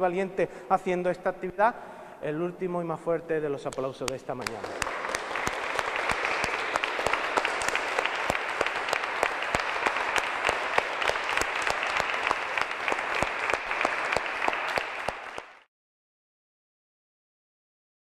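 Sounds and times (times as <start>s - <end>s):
audience applauding: 4.4s - 15.7s.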